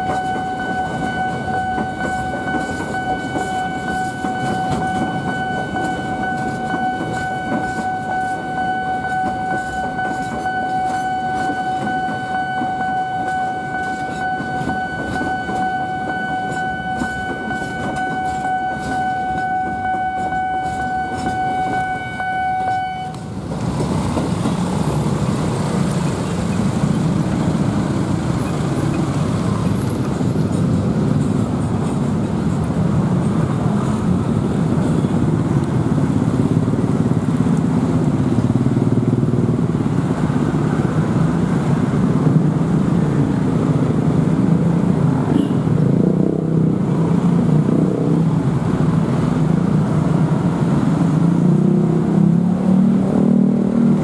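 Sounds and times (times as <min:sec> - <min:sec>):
level-crossing alarm tone: 0:00.0 - 0:23.3
freight train clattering: 0:00.0 - 0:51.3
motorcycle and car engines: 0:23.1 - 0:54.0.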